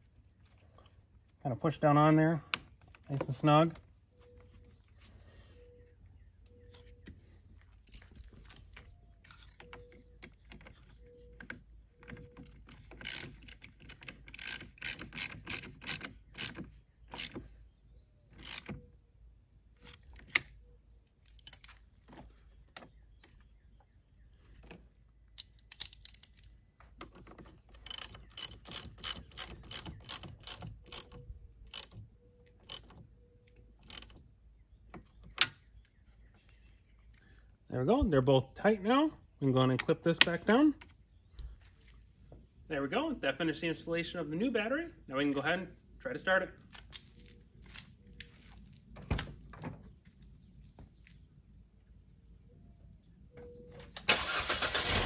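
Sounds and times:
ratchet clicking: 12.7 - 17.4, 18.4 - 18.8, 27.8 - 32.0, 32.6 - 33.0, 33.8 - 34.2.

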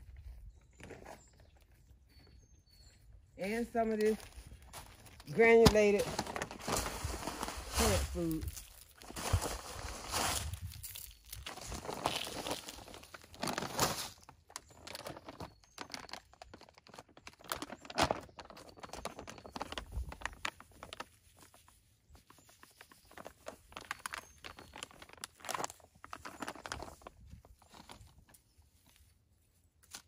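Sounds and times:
plastic bags crinkling: 4.8 - 21.5, 22.4 - 28.2.

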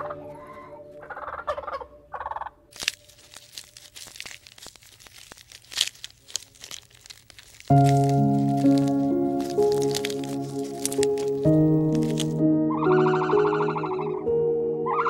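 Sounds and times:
turkey gobbling: 1.0 - 2.6, 12.7 - 14.3
leaves crackling and snapping: 2.7 - 12.4.

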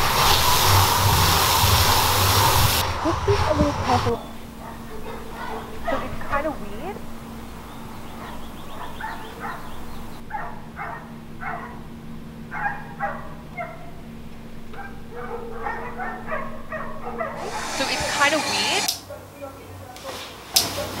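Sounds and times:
steady low hum: 0.0 - 19.4
dog barking: 4.2 - 19.4, 20.6 - 21.0.

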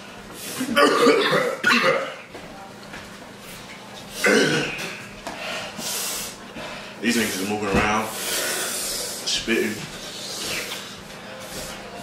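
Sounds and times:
men coughing: 0.7 - 2.2, 4.2 - 5.0.

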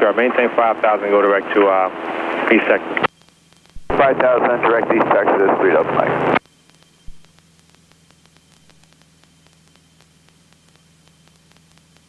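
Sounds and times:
faint electrical hum and hiss: 0.0 - 12.0
radio crackle: 0.0 - 12.0.

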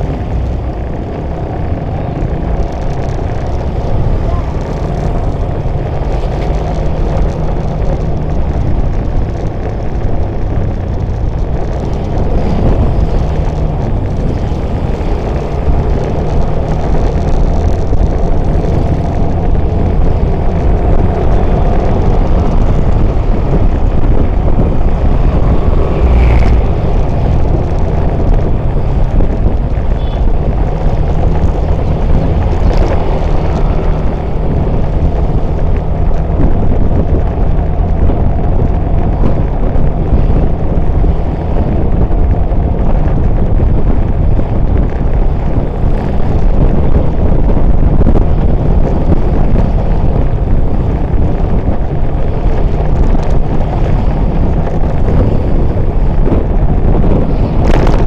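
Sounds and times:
motorcycle and scooter engines: 0.0 - 58.0
wind on microphone: 0.0 - 58.0.

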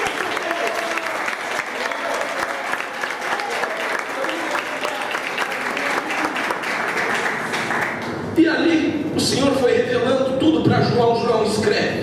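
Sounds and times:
crowd clapping: 0.0 - 8.3.

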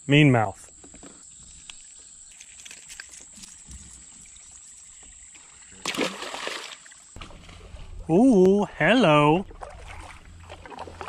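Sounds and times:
fish splashing into river: 5.8 - 7.7.

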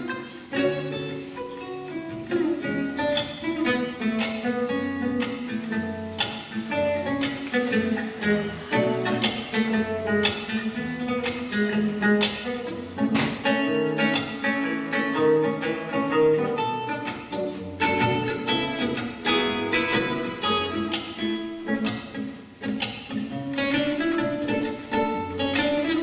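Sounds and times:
fingerstyle classical guitar: 0.0 - 26.0.

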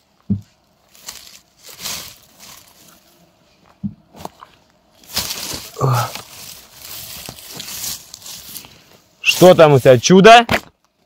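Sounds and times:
dry leaves rustling: 0.8 - 3.3, 4.1 - 10.0
low grunt: 5.6 - 6.3.

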